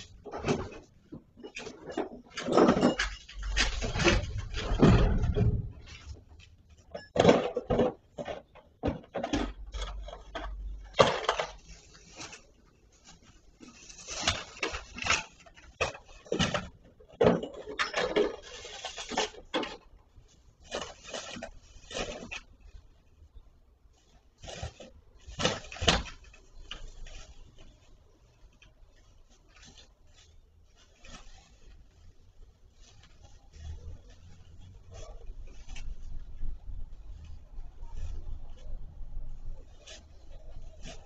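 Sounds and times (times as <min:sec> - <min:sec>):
knocks and clatter of bricks: 0:00.0 - 0:11.7, 0:14.0 - 0:22.7.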